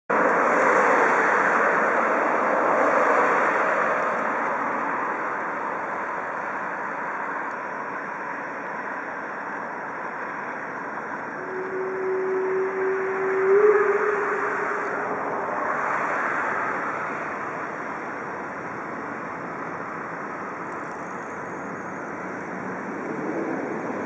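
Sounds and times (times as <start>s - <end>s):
rail yard and traffic rushing: 0.1s - 24.0s
steady tone: 7.6s - 24.0s.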